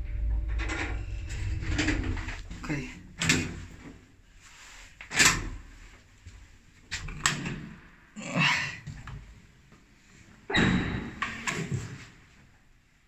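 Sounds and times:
lift doors banging open: 10.5s - 11.7s.

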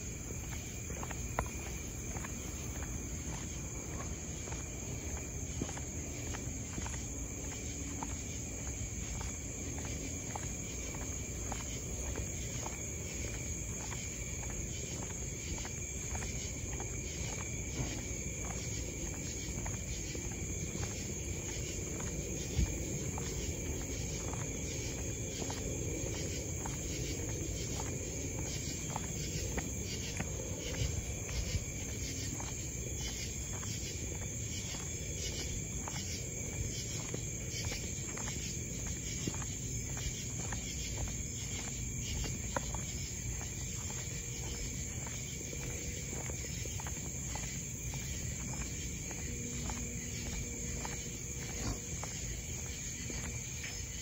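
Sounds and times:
crickets trilling: 0.0s - 54.0s
footsteps: 0.0s - 54.0s.

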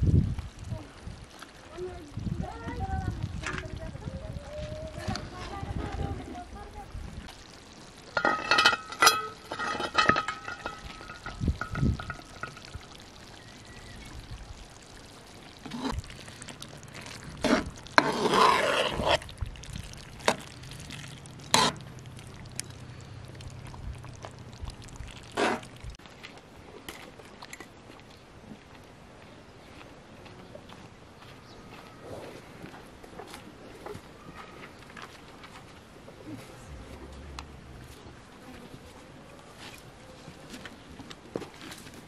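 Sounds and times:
ladle stirring thick stew: 7.4s - 13.6s, 14.7s - 26.0s
lid and ladle clinking on pot: 8.2s - 12.8s.

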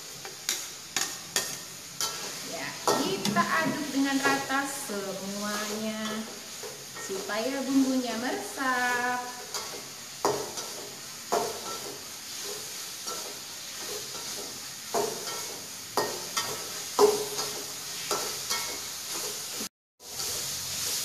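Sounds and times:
potatoes sizzling in a wok: 0.0s - 21.0s
metal spatula knocking on pan: 16.0s - 17.6s.

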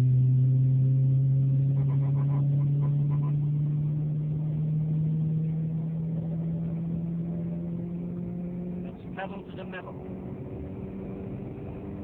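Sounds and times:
car engine accelerating: 0.0s - 12.0s.

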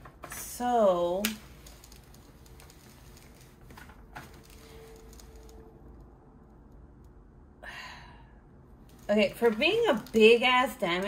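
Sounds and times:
plastic sheet rustling: 1.4s - 5.6s, 9.1s - 11.0s.

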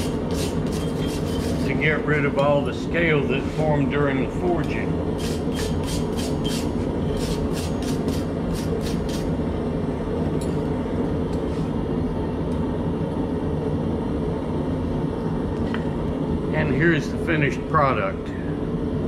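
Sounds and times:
wire brush scrubbing steel: 0.0s - 1.8s, 5.2s - 9.3s.

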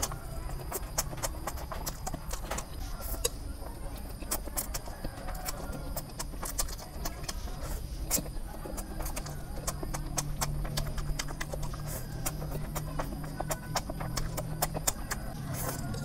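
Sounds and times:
noodles slurped and chewed: 0.0s - 16.0s
wet mouth clicks and smacks: 4.2s - 16.0s.

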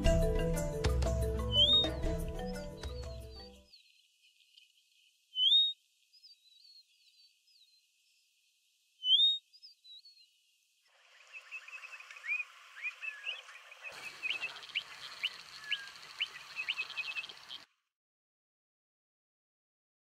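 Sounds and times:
whistled bird song notes: 1.4s - 4.0s, 5.3s - 7.8s, 9.0s - 10.2s, 11.2s - 17.6s
short bird chirps and calls: 1.5s - 2.0s, 3.2s - 7.9s, 9.0s - 10.4s, 11.0s - 17.7s.

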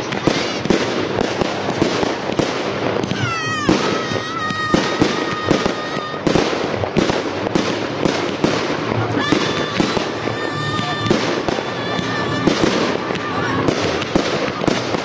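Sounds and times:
fireworks crackling and popping: 0.0s - 15.0s
high firework whistle: 3.0s - 6.8s.

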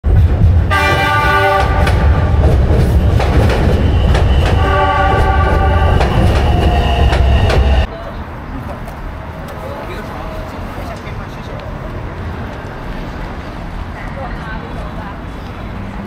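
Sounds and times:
train rumbling on track: 0.0s - 16.0s
wheels clacking over rail joints: 0.1s - 7.9s
train horn: 0.7s - 2.4s, 3.8s - 7.2s.

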